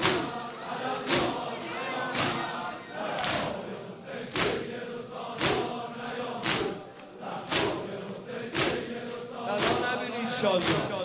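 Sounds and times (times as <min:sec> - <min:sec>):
hands slapping chests: 0:00.0 - 0:00.4, 0:01.0 - 0:01.4, 0:02.1 - 0:03.6, 0:04.3 - 0:04.7, 0:05.3 - 0:08.9, 0:09.5 - 0:10.0, 0:10.6 - 0:11.0
crowd chanting in unison: 0:00.0 - 0:11.0.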